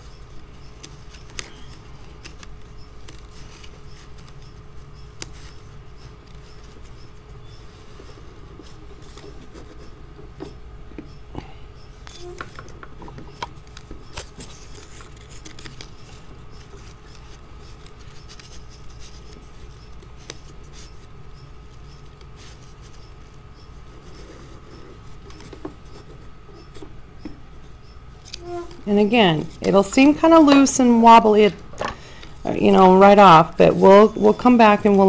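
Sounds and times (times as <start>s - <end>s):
paper strips rustling: 0.0s - 7.0s, 12.0s - 26.8s.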